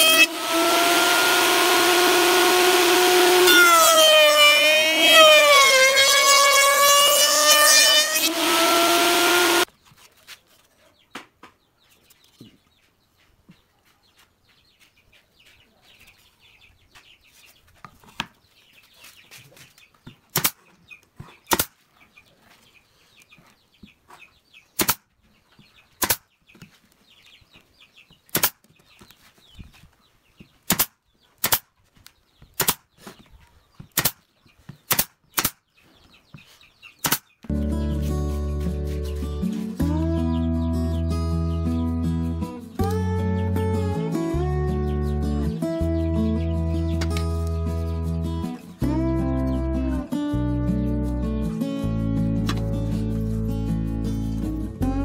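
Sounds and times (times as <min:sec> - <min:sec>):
pneumatic nailer shots: 0:00.0 - 0:09.7, 0:20.3 - 0:20.6, 0:21.5 - 0:21.7, 0:24.8 - 0:25.0, 0:26.0 - 0:26.2, 0:28.3 - 0:28.6, 0:30.7 - 0:31.7, 0:32.6 - 0:32.8, 0:34.0 - 0:34.2, 0:34.9 - 0:35.6, 0:37.0 - 0:37.3
table saw blade spinning: 0:00.0 - 0:09.7.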